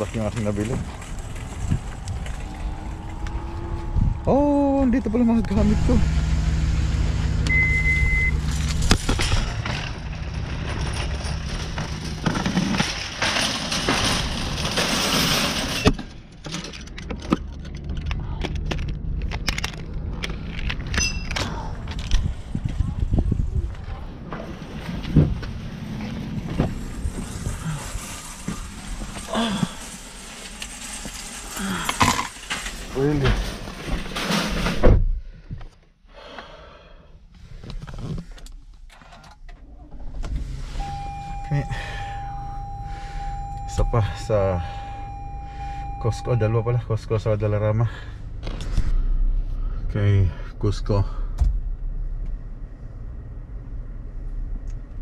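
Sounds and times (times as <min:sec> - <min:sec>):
shopping cart rattling on asphalt: 0:00.0 - 0:06.2, 0:08.3 - 0:15.9, 0:24.1 - 0:34.8
cart clanking into carts: 0:00.0 - 0:18.1, 0:23.7 - 0:34.9
car engine starting: 0:00.0 - 0:35.0, 0:37.4 - 0:55.0
clicks and handling noises: 0:08.5 - 0:22.8.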